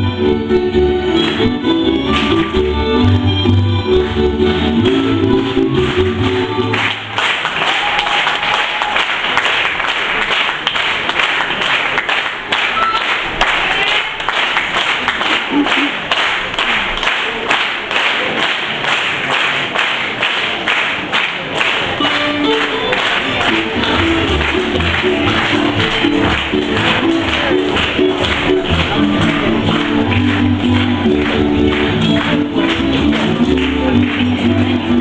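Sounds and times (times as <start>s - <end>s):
folk band music: 0.0s - 7.1s, 21.8s - 35.0s
audience applauding: 5.7s - 34.8s.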